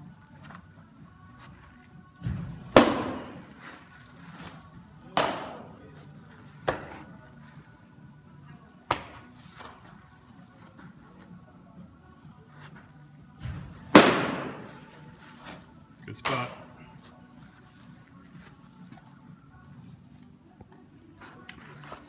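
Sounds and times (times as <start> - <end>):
baseballs smacking into mitt: 2.2 - 3.6, 4.4 - 5.8, 6.6 - 7.2, 8.8 - 9.8, 13.4 - 14.9.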